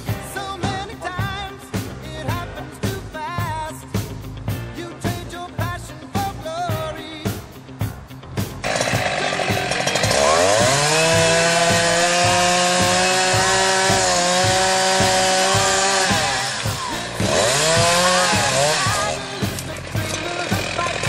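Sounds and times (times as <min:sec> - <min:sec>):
rock music: 0:00.0 - 0:21.0
chainsaw cutting branches: 0:08.6 - 0:21.0.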